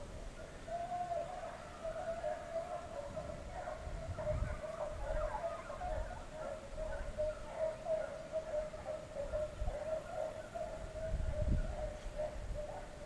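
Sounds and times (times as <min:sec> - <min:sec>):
distant hounds baying: 0:00.0 - 0:13.0
wind buffeting microphone: 0:02.7 - 0:07.6, 0:09.1 - 0:13.0.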